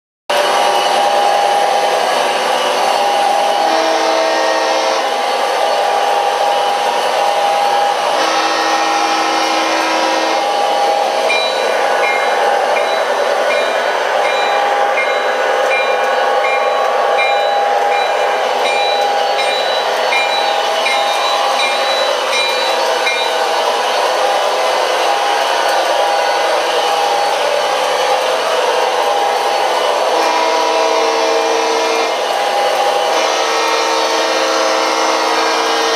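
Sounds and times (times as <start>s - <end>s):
train horn blasts: 3.4s - 5.3s, 8.0s - 11.4s, 30.0s - 35.9s
ringing train bell: 9.9s - 31.0s.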